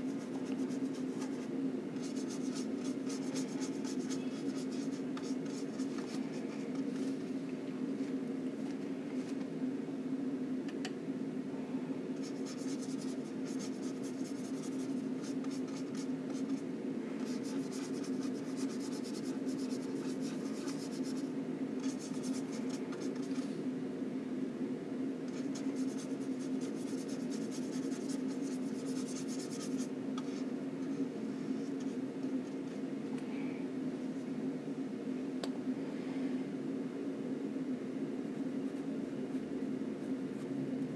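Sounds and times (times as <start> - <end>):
paintbrush scratchy strokes: 0.0 - 7.2, 12.2 - 16.6, 17.2 - 23.5, 25.3 - 32.4
steady low hum: 0.0 - 40.9.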